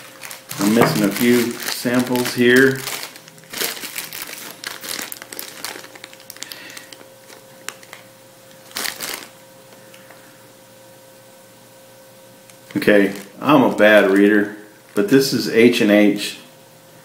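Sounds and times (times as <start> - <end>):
tobacco packets crinkling: 0.0 - 9.4, 12.7 - 15.1.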